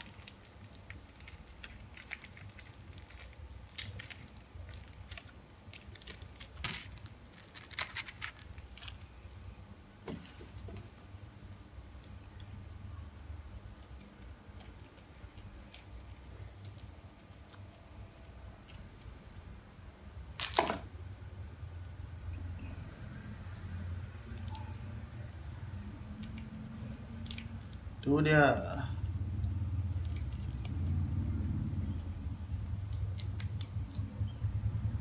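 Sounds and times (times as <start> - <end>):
plastic sachets crinkling: 0.0 - 9.3
low steady hum: 0.0 - 35.0.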